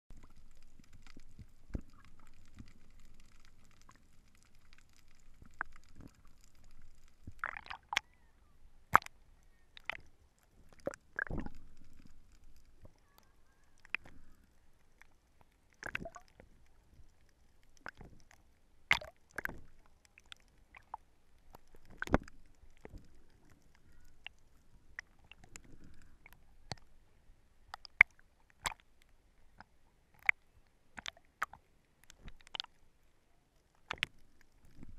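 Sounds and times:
underwater rumble: 0.1 - 15.2, 21.4 - 27.5, 34.0 - 34.9.

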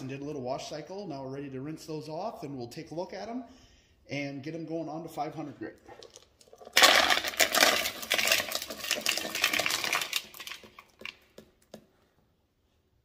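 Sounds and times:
stones clattering together: 6.0 - 11.8.

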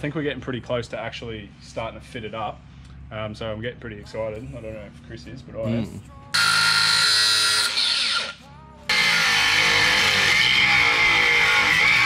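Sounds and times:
angle grinder whining: 6.3 - 12.0.

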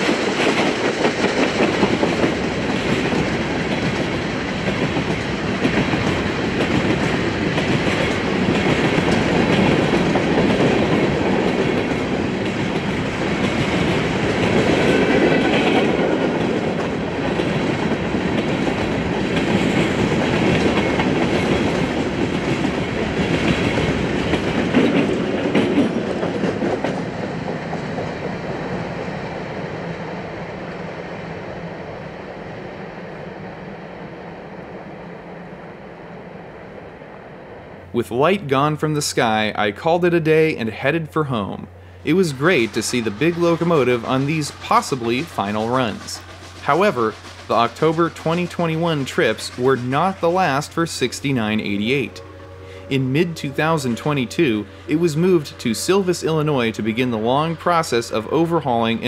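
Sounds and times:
railroad wheels clicking over joints: 0.0 - 31.0, 38.9 - 59.0.

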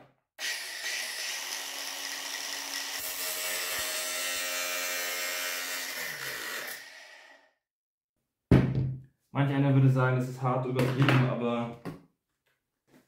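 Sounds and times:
angle grinder cutting plastic: 0.4 - 7.6.

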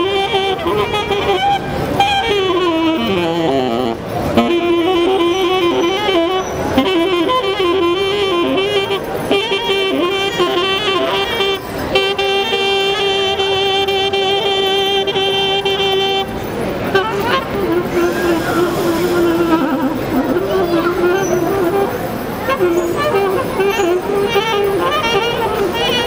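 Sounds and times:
solo saxophone melody: 0.0 - 26.0.

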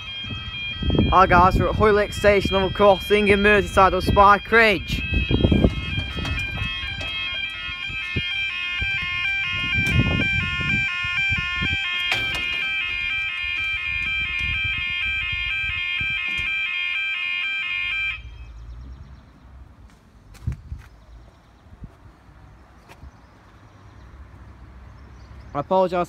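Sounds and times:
wind buffeting microphone: 0.0 - 16.8, 18.2 - 25.5
level crossing alarm warble: 0.0 - 18.7.

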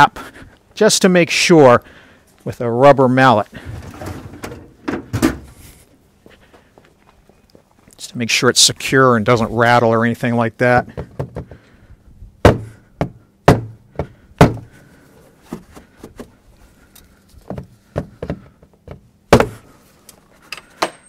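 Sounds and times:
rubber mallet knocking on plastic: 10.9 - 11.6, 12.4 - 14.6, 17.5 - 19.6.

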